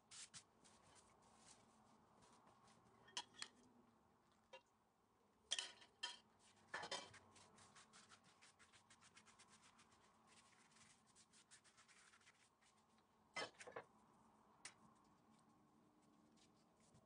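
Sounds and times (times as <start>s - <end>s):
pastry brush swishing: 0.0s - 2.8s, 6.4s - 12.9s.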